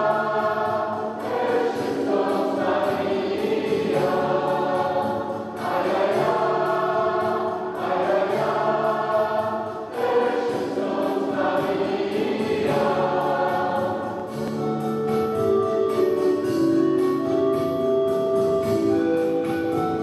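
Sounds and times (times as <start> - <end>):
mixed choir singing: 0.0 - 15.0.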